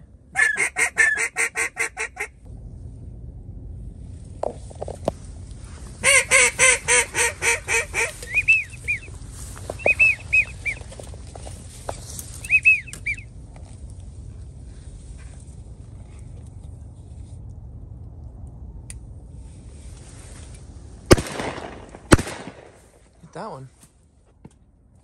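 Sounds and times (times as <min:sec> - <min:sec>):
duck call quacks: 0:00.4 - 0:02.4, 0:06.0 - 0:09.1, 0:09.8 - 0:10.9, 0:12.4 - 0:13.2
high whistle notes: 0:08.2 - 0:09.1, 0:09.8 - 0:10.8, 0:12.4 - 0:13.2.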